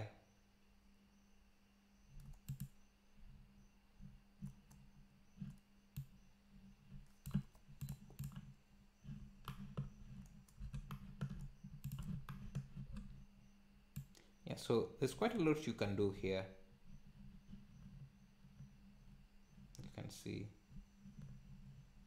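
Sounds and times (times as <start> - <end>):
faint low hum: 0.0 - 22.0
mouse and keyboard clicks: 2.2 - 2.8, 6.9 - 8.5, 9.1 - 13.2.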